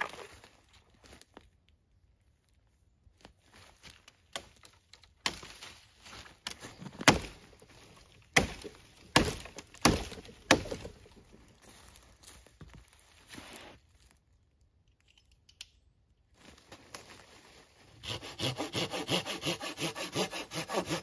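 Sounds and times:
knife chopping branch: 7.0 - 7.4, 8.3 - 11.0.

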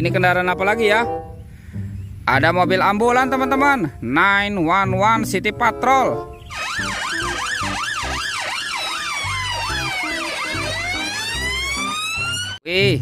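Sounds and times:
siren wailing: 6.5 - 12.6
siren yelping: 6.5 - 12.6.

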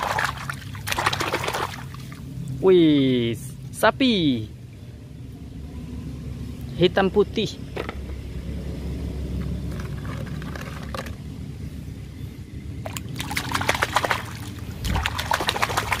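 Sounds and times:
splashing and dripping: 0.0 - 2.3, 12.8 - 16.0
water running in a tub: 13.2 - 16.0.

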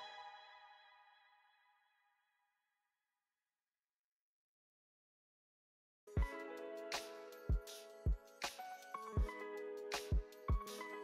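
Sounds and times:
faint background music: 6.1 - 11.0.

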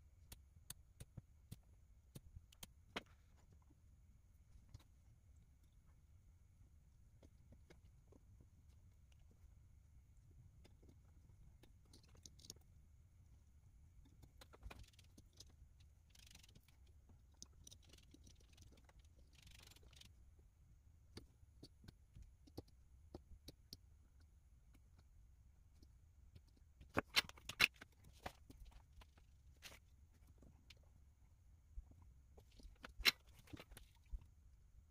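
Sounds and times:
hands clicking and tapping plastic: 0.2 - 3.2.

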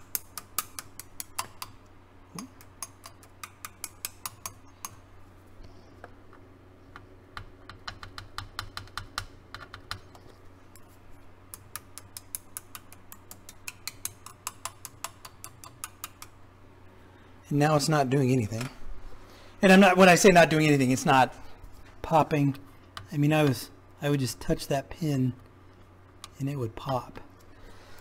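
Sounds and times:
wooden stick tapping circuit boards: 0.0 - 5.0, 6.0 - 10.3, 11.5 - 16.4
faint steady hum: 0.0 - 28.0.

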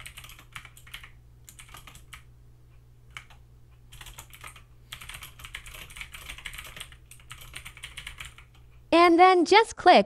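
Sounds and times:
typing on a keyboard: 0.0 - 2.3, 3.1 - 8.6.

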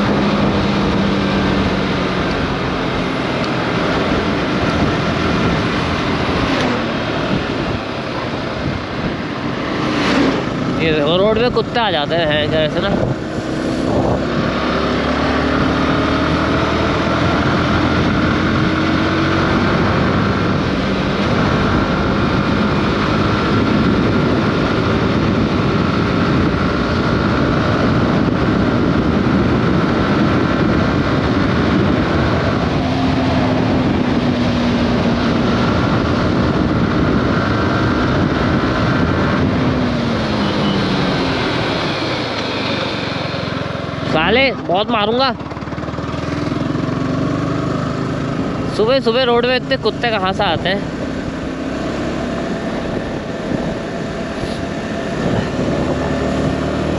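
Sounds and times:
wind rushing: 0.0 - 48.7, 49.8 - 56.9
motorcycle engine running: 0.0 - 56.9.

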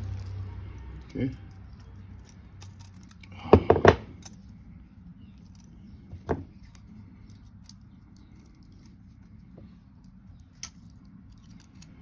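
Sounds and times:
low steady hum: 0.0 - 12.0
metal tools knocking on wooden workbench: 3.5 - 4.1, 6.2 - 6.5.

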